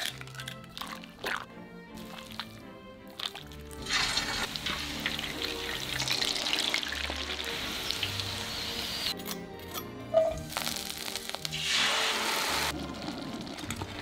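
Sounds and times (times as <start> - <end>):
soft background music: 0.0 - 14.0
chicken deep-frying in hot oil: 3.1 - 9.1, 10.4 - 14.0.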